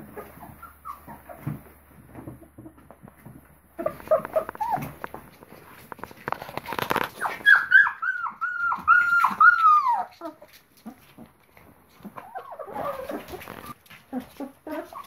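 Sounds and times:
puppy whining and yelping: 0:00.0 - 0:01.7, 0:03.8 - 0:05.4, 0:06.5 - 0:11.3, 0:11.9 - 0:15.0.

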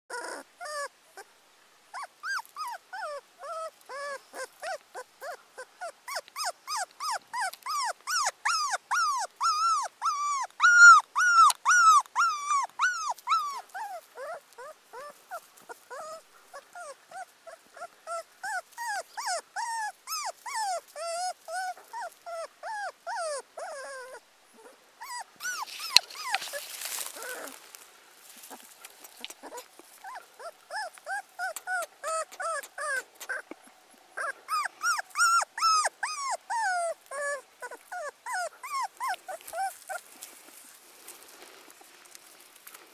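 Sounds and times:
puppy whimpering cries: 0:00.1 - 0:01.3, 0:01.9 - 0:27.6, 0:28.5 - 0:40.1
rustling: 0:25.0 - 0:42.9.

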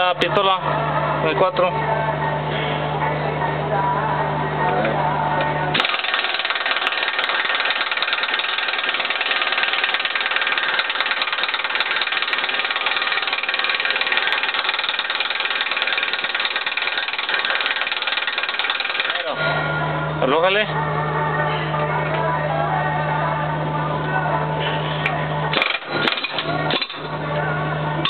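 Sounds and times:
impact wrench hammering: 0:05.8 - 0:19.3, 0:25.5 - 0:27.1.

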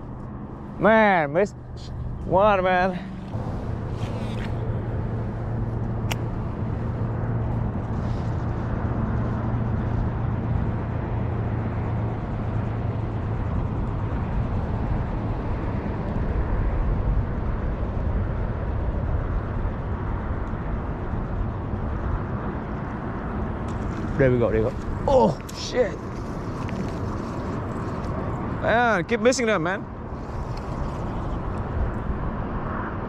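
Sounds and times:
low motor-like hum: 0:00.0 - 0:28.8.

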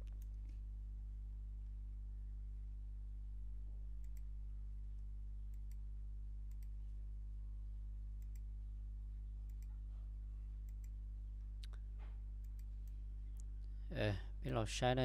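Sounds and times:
steady low hum: 0:00.0 - 0:15.0
computer mouse clicking: 0:04.0 - 0:04.3, 0:06.5 - 0:06.7, 0:08.2 - 0:08.5, 0:09.5 - 0:09.8, 0:10.6 - 0:11.0, 0:12.4 - 0:13.5.

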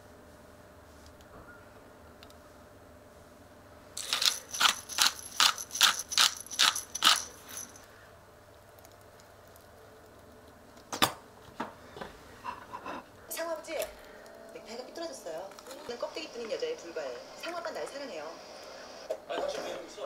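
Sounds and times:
pepper grinder grinding: 0:04.0 - 0:07.8.

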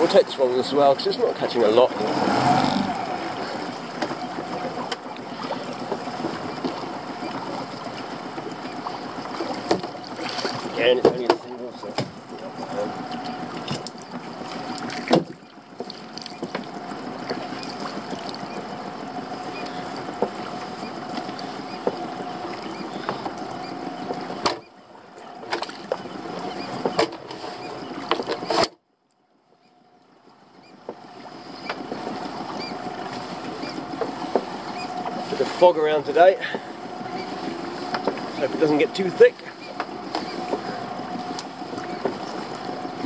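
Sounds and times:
outboard motor running: 0:00.0 - 0:43.0.

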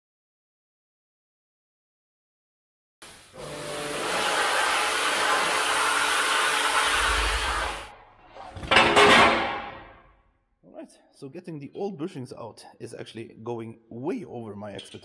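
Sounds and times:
pressure washer spraying: 0:03.0 - 0:07.9
loud burst of noise: 0:03.1 - 0:07.9.

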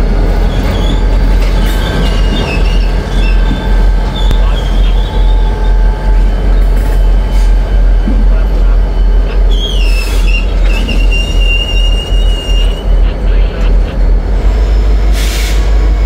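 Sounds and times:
diesel locomotive engines droning: 0:00.0 - 0:16.0
wheel flanges squealing: 0:00.4 - 0:13.1.

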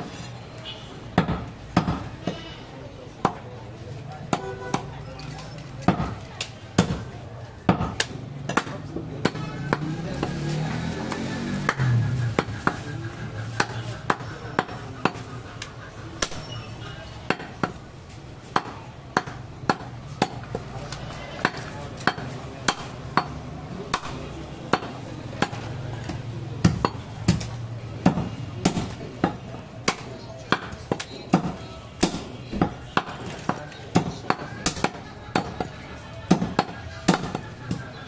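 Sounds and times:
cleaver chopping meat on wood: 0:01.2 - 0:02.1, 0:03.2 - 0:03.4, 0:05.8 - 0:12.8, 0:13.6 - 0:16.5, 0:18.5 - 0:35.7, 0:36.3 - 0:38.0.

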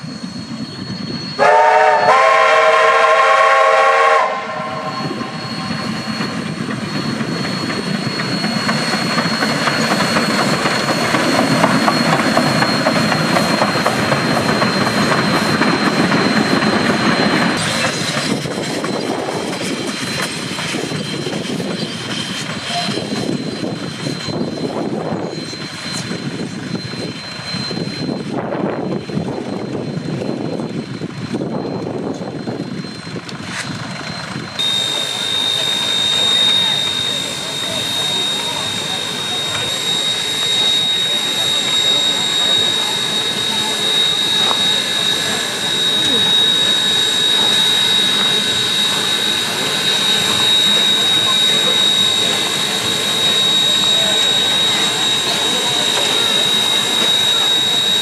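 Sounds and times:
train passing with wheel clatter: 0:00.0 - 0:58.0
steam whistle blast: 0:01.2 - 0:17.8, 0:34.6 - 0:58.0.

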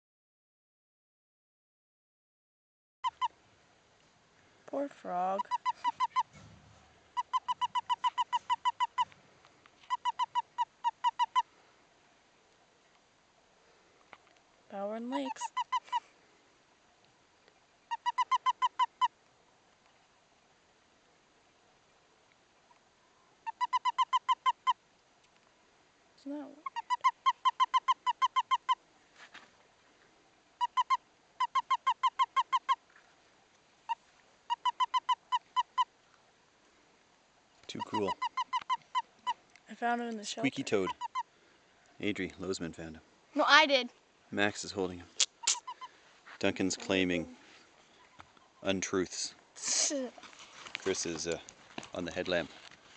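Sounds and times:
toad chirping: 0:03.0 - 0:03.4, 0:05.2 - 0:06.4, 0:07.1 - 0:09.2, 0:09.8 - 0:11.5, 0:15.0 - 0:16.0, 0:17.8 - 0:19.1, 0:23.4 - 0:24.8, 0:26.6 - 0:28.8, 0:30.6 - 0:32.8, 0:33.9 - 0:35.9, 0:37.8 - 0:39.5, 0:40.2 - 0:41.3, 0:45.2 - 0:46.0.

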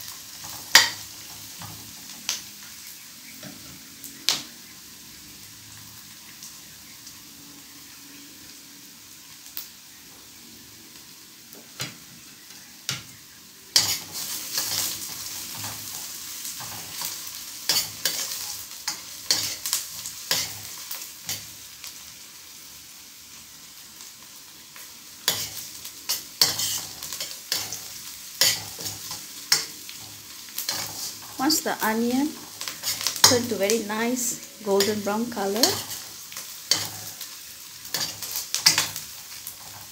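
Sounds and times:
onions sizzling in hot oil: 0:00.0 - 0:39.9
spatula scraping a pan: 0:13.7 - 0:21.5, 0:25.2 - 0:31.6, 0:32.3 - 0:33.6, 0:34.2 - 0:39.9.

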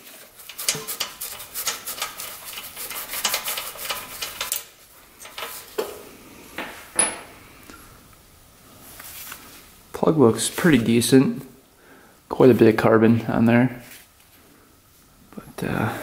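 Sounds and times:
socket wrench ratcheting: 0:00.5 - 0:05.6.

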